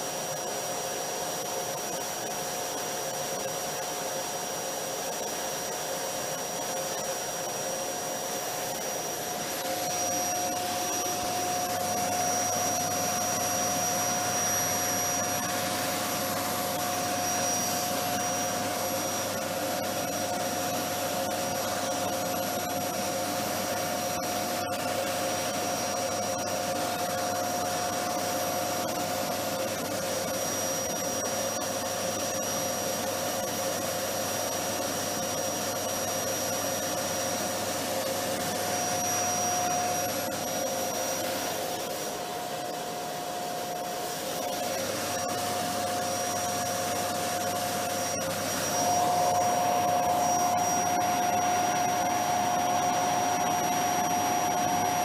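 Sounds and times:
vacuum cleaner motor running: 0:00.0 - 0:55.0.

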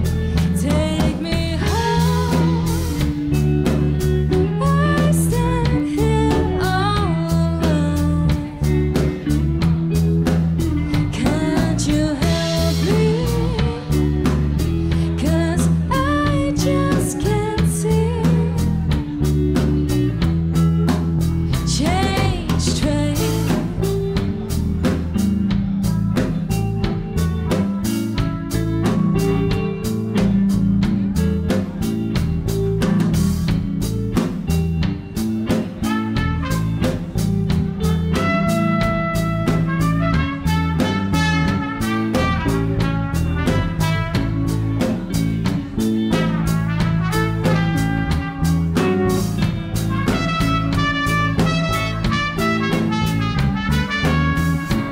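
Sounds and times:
bass guitar: 0:00.0 - 0:54.9
drums: 0:00.0 - 0:54.9
electric guitar: 0:00.0 - 0:54.9
woman singing: 0:00.3 - 0:03.4, 0:04.3 - 0:09.4, 0:10.8 - 0:19.2, 0:21.5 - 0:24.0.

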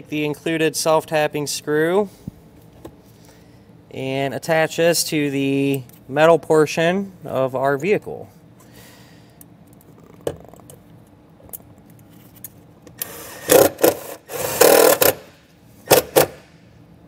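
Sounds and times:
cordless drill driving screw: 0:13.0 - 0:15.2.

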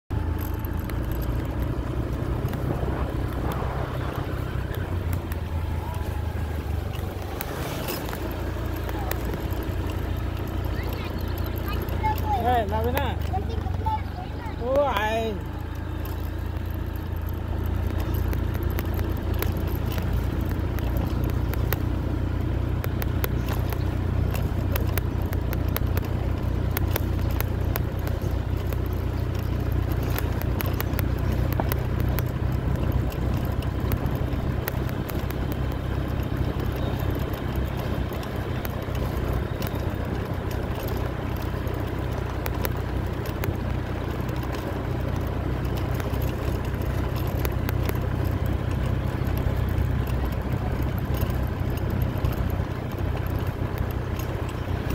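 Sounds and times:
vehicle rumble: 0:00.0 - 0:54.9
wind on microphone: 0:02.4 - 0:05.6.

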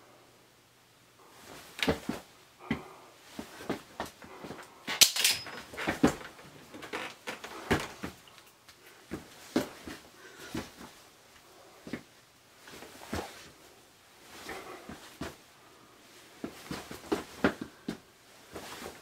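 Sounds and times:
scuffle thumps and rustles: 0:01.4 - 0:04.6, 0:05.4 - 0:08.2, 0:09.0 - 0:11.0, 0:11.8 - 0:13.6, 0:16.4 - 0:19.0.

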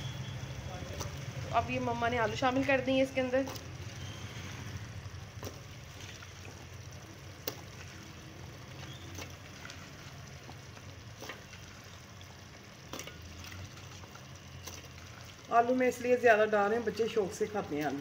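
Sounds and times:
meat frying in a pot: 0:00.0 - 0:18.0
potato pieces dropped in pot: 0:03.4 - 0:03.8, 0:08.7 - 0:11.6, 0:12.9 - 0:13.4.

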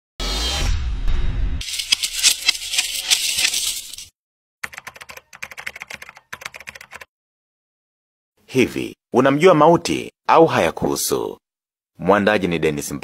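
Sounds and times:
keyboard typing clicks: 0:04.6 - 0:07.1.

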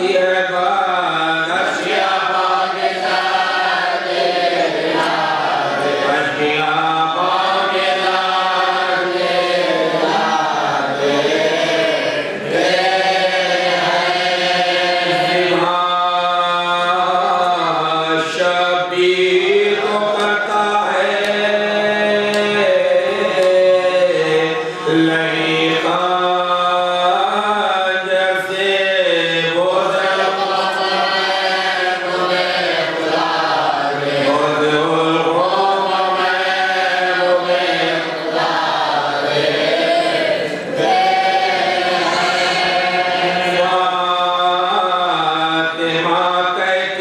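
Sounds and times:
men chanting a lament: 0:00.0 - 0:47.0
person singing into a microphone: 0:15.0 - 0:38.1.

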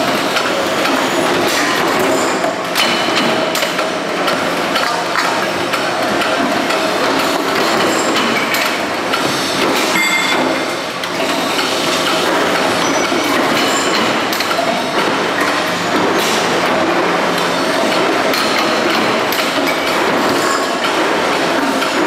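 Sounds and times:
metallic ring: 0:09.9 - 0:10.7.

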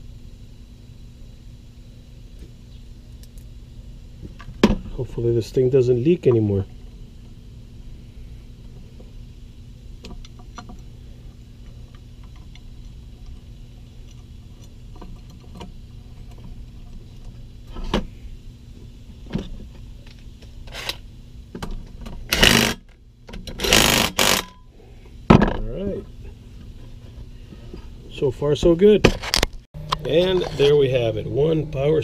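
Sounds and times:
steady low hum: 0:00.0 - 0:32.0
cordless drill running: 0:22.3 - 0:22.8, 0:23.6 - 0:24.5.

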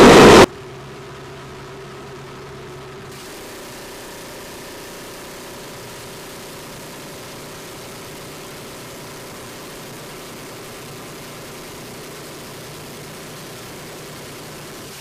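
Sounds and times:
turboprop engines droning: 0:00.0 - 0:06.5.

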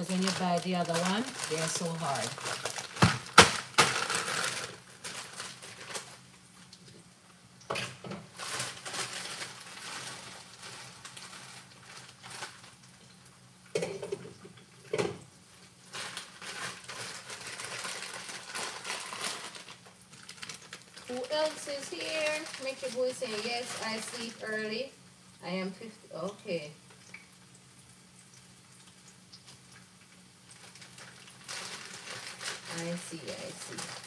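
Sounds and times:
plastic bag crinkling: 0:00.0 - 0:06.8, 0:07.8 - 0:13.2, 0:15.6 - 0:24.9, 0:30.4 - 0:34.0.

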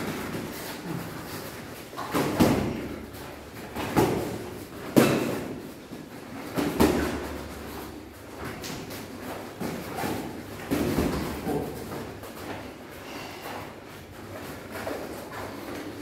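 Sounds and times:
punches hitting boxing gloves: 0:03.6 - 0:05.6.

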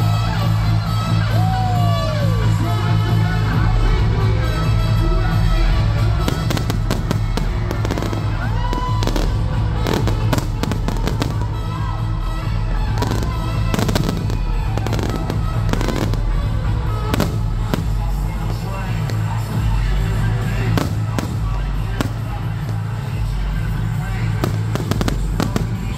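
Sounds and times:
loud music with strong bass: 0:00.0 - 0:25.9
fireworks bangs and crackles: 0:03.7 - 0:25.9.

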